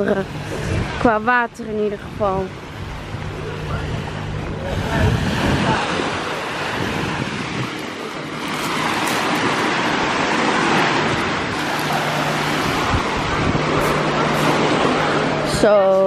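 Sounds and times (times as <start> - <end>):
waves washing onto pebbles: 4.8 - 15.5.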